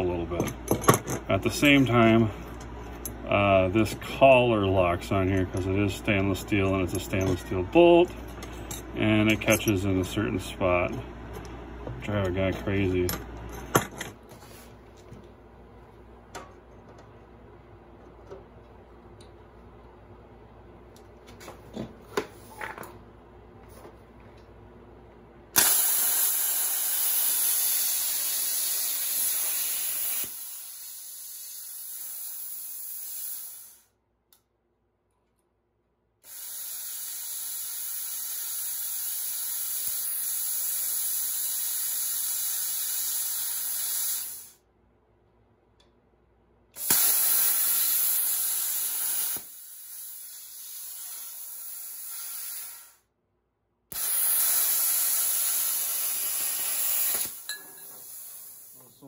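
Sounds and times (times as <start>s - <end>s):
plasma cutter torch hissing: 25.6s - 33.9s, 36.2s - 44.6s, 46.8s - 53.0s, 53.9s - 59.0s.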